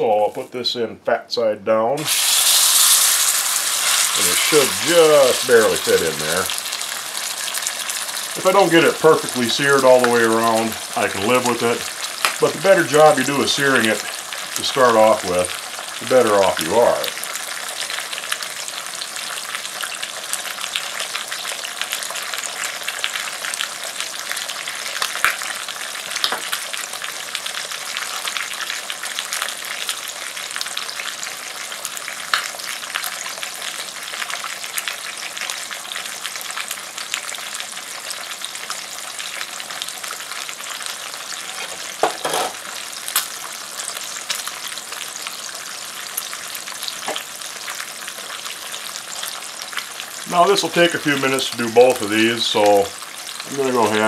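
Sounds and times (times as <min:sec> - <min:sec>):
fat sizzling in skillet: 0:02.0 - 0:54.0
loud pops and clicks: 0:12.2 - 0:12.4.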